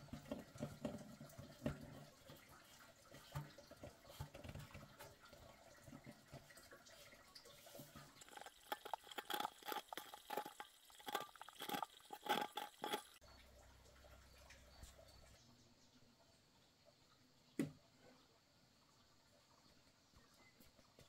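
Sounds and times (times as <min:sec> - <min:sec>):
water splashing and dripping: 0:00.0 - 0:15.4.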